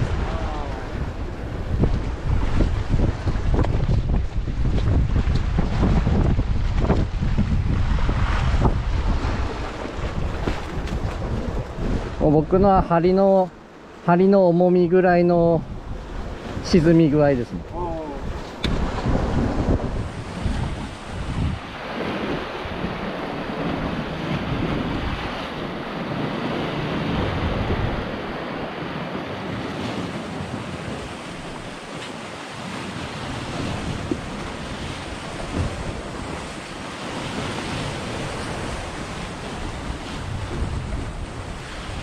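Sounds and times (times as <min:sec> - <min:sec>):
wind buffeting microphone: 0:00.0 - 0:13.4, 0:15.2 - 0:42.0
waves washing against rocks: 0:00.0 - 0:14.0, 0:15.6 - 0:42.0.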